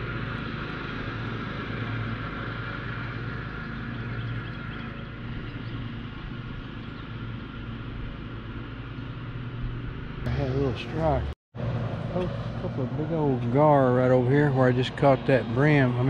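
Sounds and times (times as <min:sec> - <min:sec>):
low droning rumble: 0:09.1 - 0:16.0.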